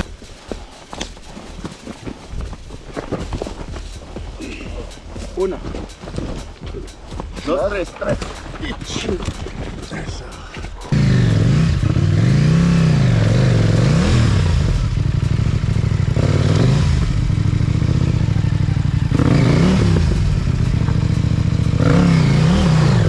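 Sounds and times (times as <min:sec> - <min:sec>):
motorcycle engine revving: 0:10.9 - 0:23.0
clatter: 0:19.1 - 0:23.0.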